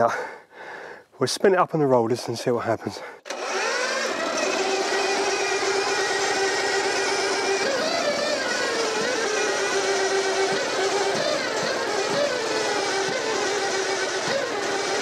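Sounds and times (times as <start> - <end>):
electric starter whirring engine: 3.2 - 15.0.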